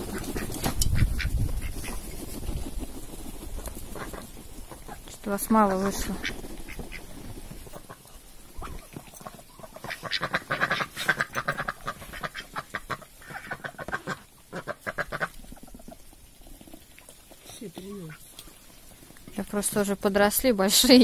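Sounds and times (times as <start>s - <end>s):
ducks calling: 0.0s - 2.2s, 3.8s - 16.2s, 17.9s - 19.0s.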